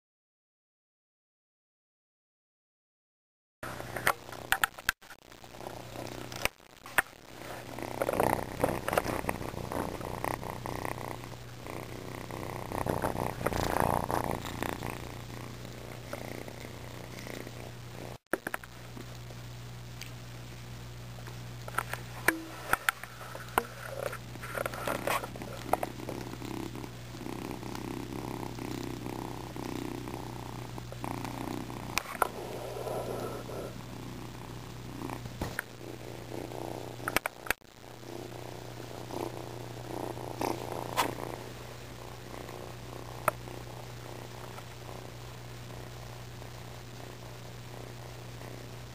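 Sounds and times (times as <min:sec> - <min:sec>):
kitten purring: 0:03.7 - 0:19.4, 0:21.2 - 0:48.9.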